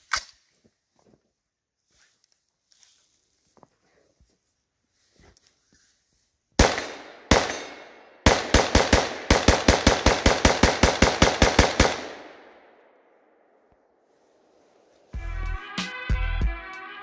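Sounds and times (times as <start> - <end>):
rifle gunshots: 6.6 - 12.7.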